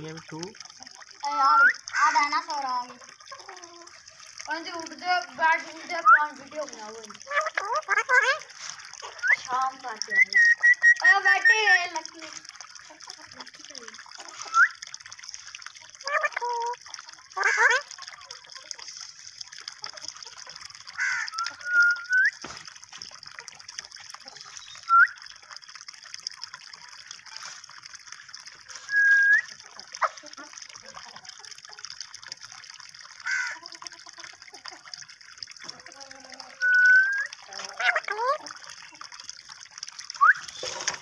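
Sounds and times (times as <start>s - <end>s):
water trickling from pipe: 0.0s - 41.0s
bird calls: 24.2s - 25.1s, 40.2s - 41.0s.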